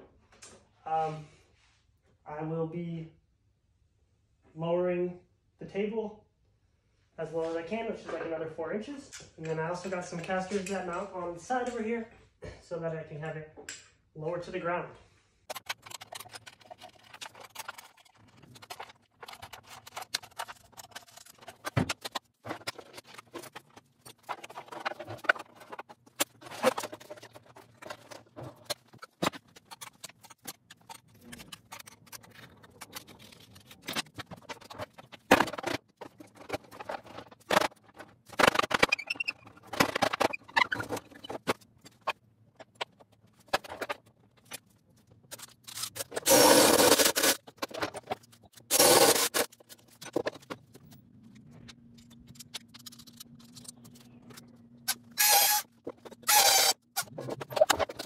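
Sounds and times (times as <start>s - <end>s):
tools knocking and scraping: 15.5s - 44.6s.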